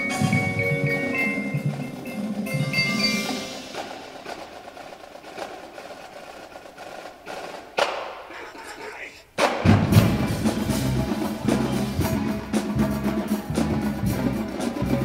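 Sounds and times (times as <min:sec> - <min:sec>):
snare drumline stick taps: 0:07.3 - 0:08.2.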